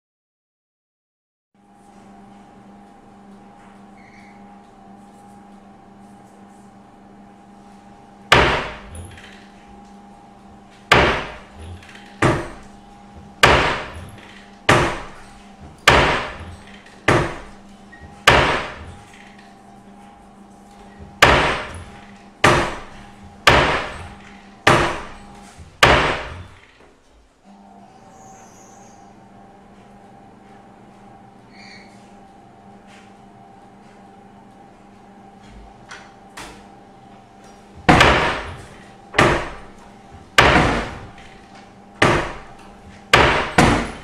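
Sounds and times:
door slamming shut: 8.3s - 9.5s, 10.9s - 19.2s, 21.0s - 26.6s, 37.8s - 41.4s, 42.0s - 44.0s.

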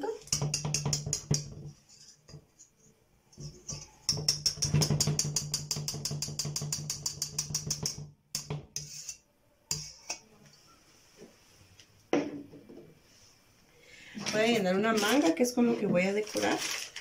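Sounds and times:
spatula scraping: 0.3s - 10.3s
spatula clicking across whisk wires: 3.7s - 9.1s.

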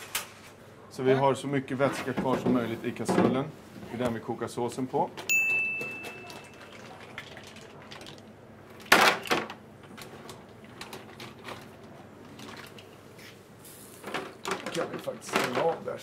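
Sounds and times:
mussel shells clattering: 6.0s - 8.3s.

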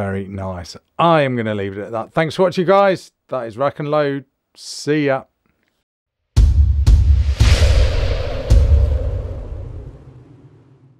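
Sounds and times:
music: 6.4s - 9.2s
deep cinematic impact hit: 6.4s - 10.9s.

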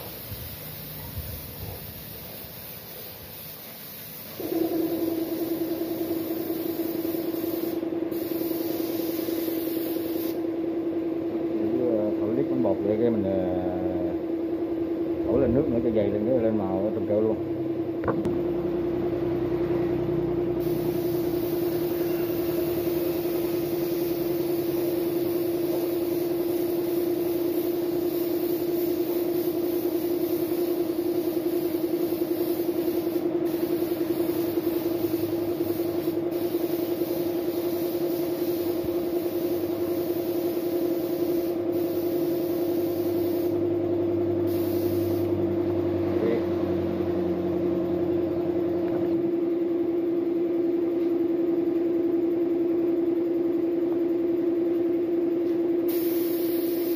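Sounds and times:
paint spray gun hissing: 0.0s - 10.4s, 20.6s - 43.6s, 44.4s - 45.4s, 55.9s - 56.9s
air compressor motor humming: 0.0s - 56.9s.

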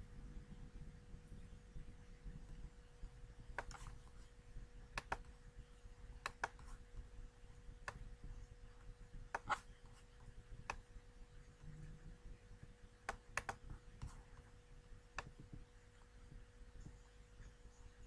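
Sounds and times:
faint steady hum: 0.0s - 18.0s
computer mouse clicking: 3.5s - 4.2s, 4.9s - 5.4s, 6.2s - 6.8s, 7.8s - 8.1s, 9.3s - 10.0s, 10.6s - 10.9s, 13.0s - 14.5s, 15.2s - 15.6s.

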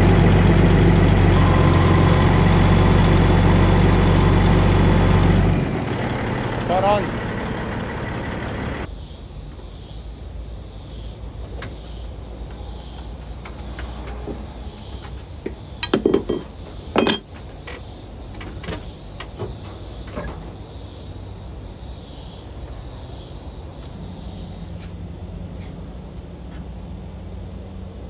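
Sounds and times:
sharp metallic knocks: 13.8s - 17.8s
spanners clinking on metal fittings: 15.8s - 17.8s.

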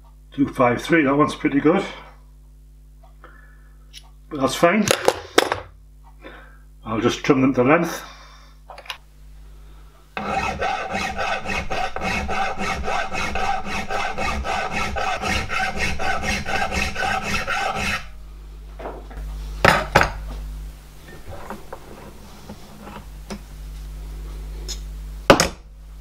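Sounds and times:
hand file rasping on steel: 10.2s - 18.1s.

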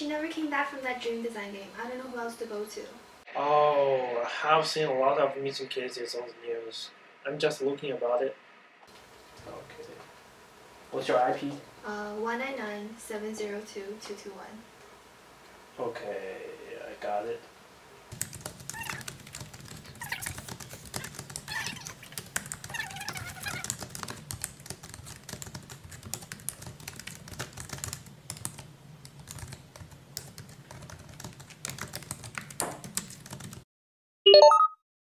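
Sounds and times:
laptop keyboard typing: 18.1s - 33.6s
short electronic chirp: 34.3s - 34.8s.

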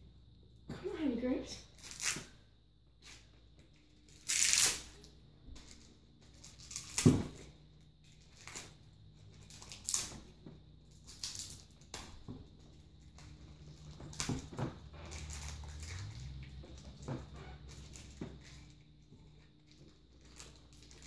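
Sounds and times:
plastic packaging crinkling and tearing: 1.8s - 2.3s, 4.1s - 7.4s, 8.2s - 8.7s, 9.4s - 10.3s, 10.9s - 12.2s, 15.0s - 17.1s, 19.6s - 21.0s.

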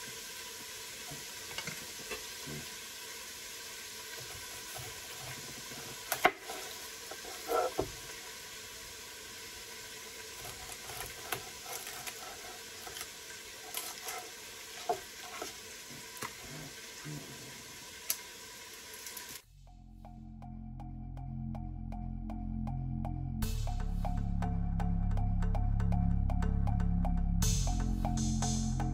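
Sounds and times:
chicken sizzling in oil: 0.0s - 19.4s.

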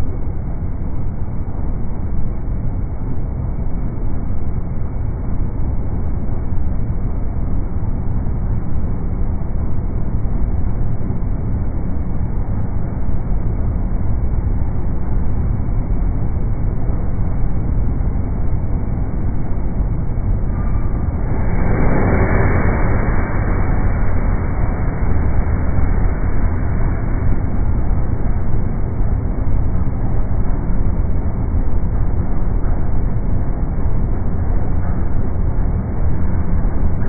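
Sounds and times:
diesel locomotive idling: 20.5s - 29.4s.

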